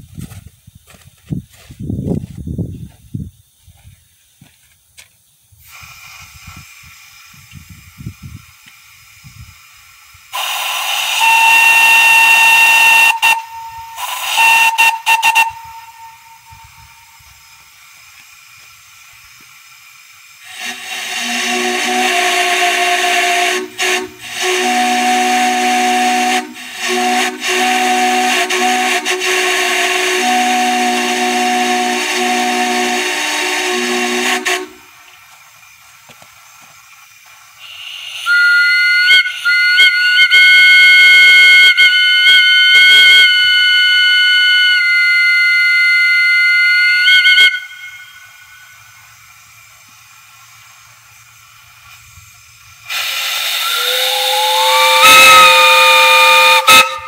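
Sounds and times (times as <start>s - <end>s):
single-note whistle blasts: 10.4s - 17.6s, 37.6s - 49.0s, 53.5s - 57.0s.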